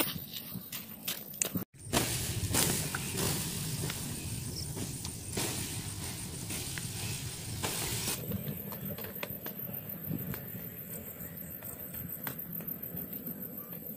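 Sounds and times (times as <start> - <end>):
water hissing on hot embers: 1.8 - 8.3.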